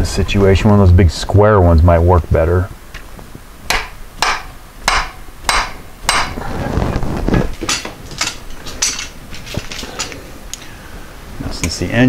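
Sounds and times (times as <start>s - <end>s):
hammer striking metal: 3.7s - 6.4s.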